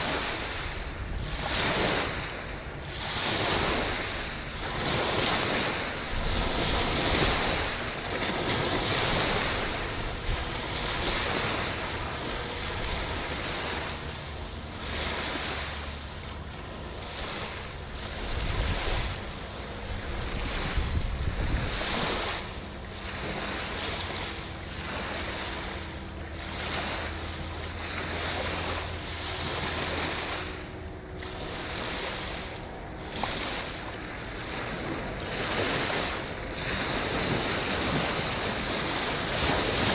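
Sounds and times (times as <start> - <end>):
boat wake washing in: 0.0 - 39.9
faint motorboat engines droning: 0.0 - 39.9
wind buffeting microphone: 0.0 - 39.9.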